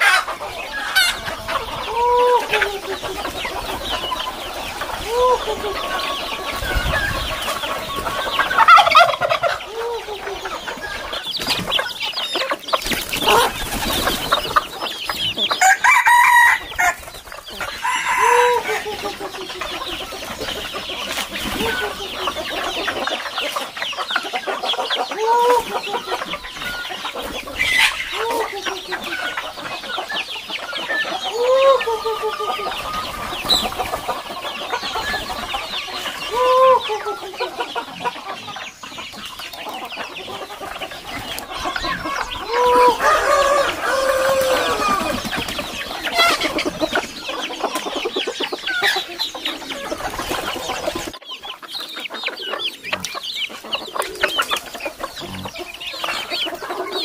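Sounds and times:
roosters crowing: 0:00.0 - 0:51.2
chickens clucking: 0:00.0 - 0:57.0.

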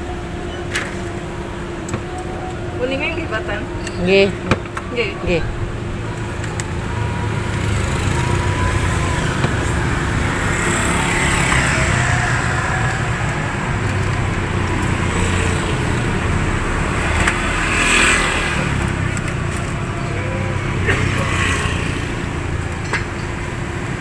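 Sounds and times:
road traffic rumble: 0:00.0 - 0:24.0
vehicles passing by: 0:00.0 - 0:24.0.

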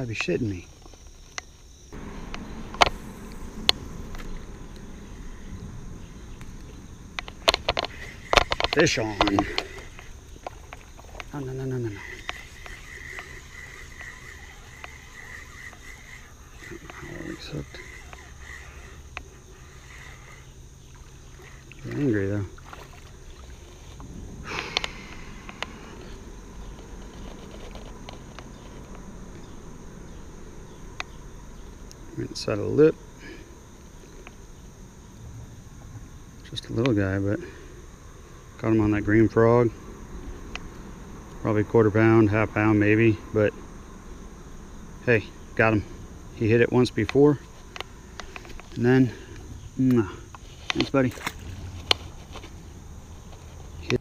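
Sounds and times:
wind rumble: 0:01.7 - 0:21.7, 0:22.5 - 0:36.6
fishing line and tackle clicks: 0:02.2 - 0:05.5, 0:06.4 - 0:29.5
faint reel ticks: 0:06.3 - 0:22.1
fishing reel clicks: 0:07.2 - 0:10.1, 0:12.0 - 0:20.5
fish splashing at the surface: 0:20.9 - 0:23.8.

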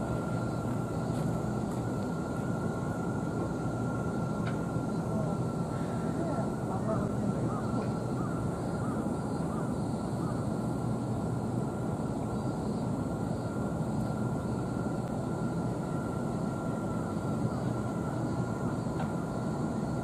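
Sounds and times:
faint steady whine: 0:00.0 - 0:20.0
industrial and traffic rumble: 0:00.0 - 0:20.0
faint bird calls: 0:05.2 - 0:10.8.

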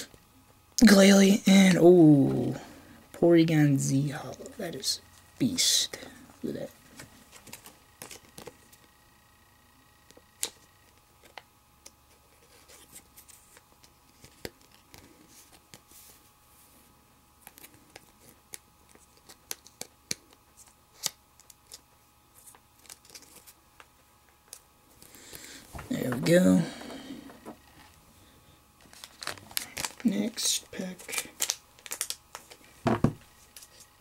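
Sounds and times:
card packs rustling: 0:05.4 - 0:08.9, 0:22.4 - 0:23.6, 0:24.5 - 0:28.0, 0:28.8 - 0:34.0.

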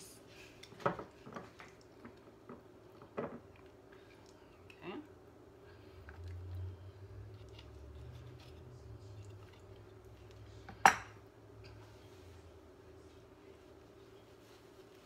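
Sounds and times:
low hum: 0:03.9 - 0:14.4.

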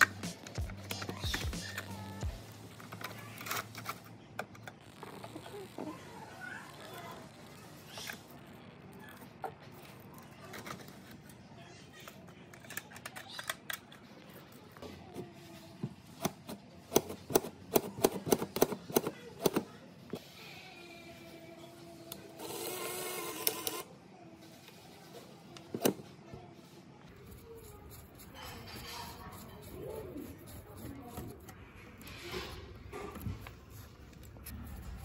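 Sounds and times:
harsh metal rasp: 0:27.4 - 0:33.2.

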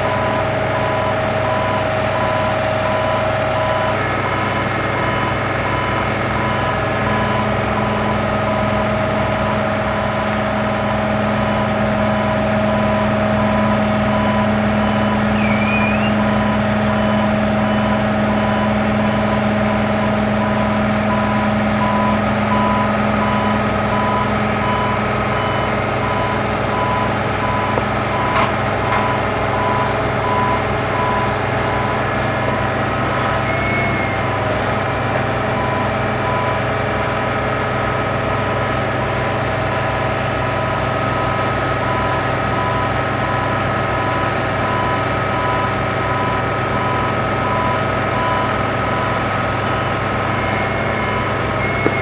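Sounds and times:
boom lift machine hum: 0:00.0 - 0:52.0
repeating warning beep: 0:12.3 - 0:19.5, 0:20.4 - 0:34.6, 0:41.9 - 0:52.0
short chirp: 0:15.3 - 0:16.2.

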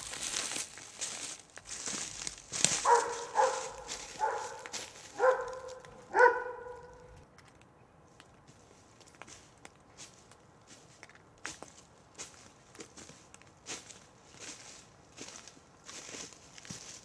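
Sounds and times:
footsteps on leaves and gravel: 0:00.0 - 0:07.1, 0:08.5 - 0:17.0
dog barking: 0:02.8 - 0:07.2.

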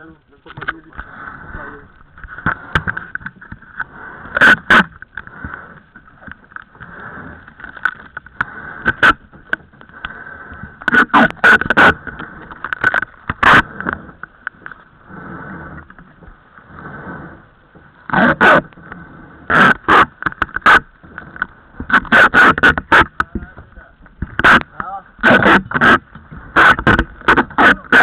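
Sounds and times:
knocks and clatter on boat deck: 0:21.4 - 0:28.0.

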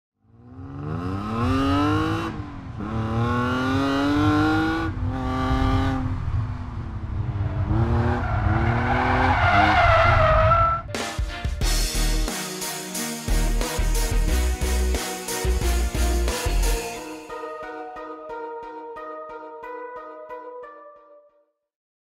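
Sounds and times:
car engine revving: 0:00.3 - 0:10.6.

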